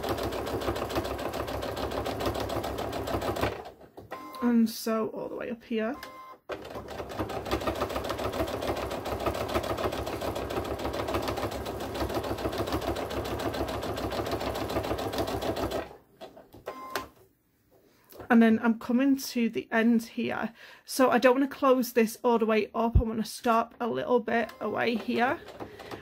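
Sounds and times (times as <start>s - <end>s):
sewing machine stitching: 0.0s - 4.4s, 6.5s - 17.0s, 24.5s - 26.0s.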